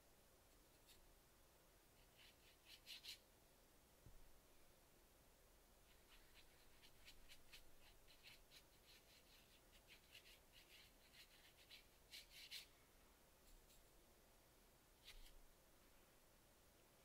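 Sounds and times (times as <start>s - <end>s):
brush strokes on paper: 1.9s - 3.3s, 5.8s - 14.0s, 15.0s - 16.1s.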